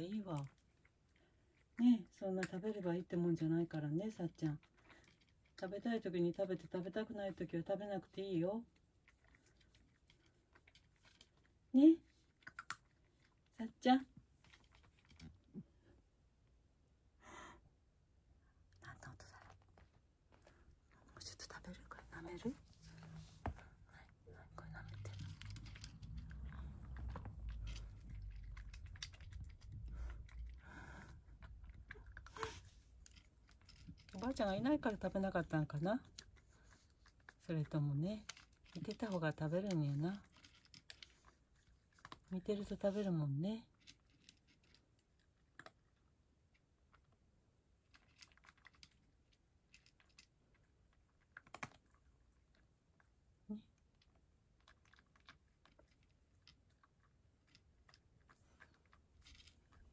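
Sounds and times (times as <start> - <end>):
cat crunching dry kibble: 8.7 - 13.6, 19.1 - 59.9.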